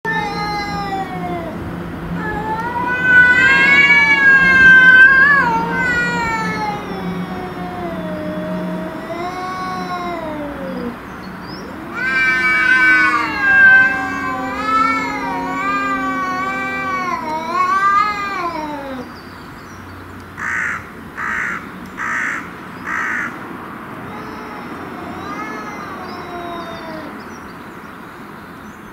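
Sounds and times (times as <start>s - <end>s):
cats yowling: 0.0s - 19.2s, 24.0s - 27.3s
cat harsh short calls: 2.2s - 11.0s, 11.6s - 19.1s.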